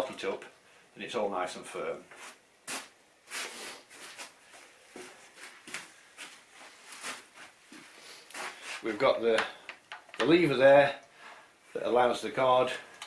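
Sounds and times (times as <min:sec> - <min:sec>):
footsteps: 0:02.1 - 0:09.5
clothing rustle: 0:02.2 - 0:08.9.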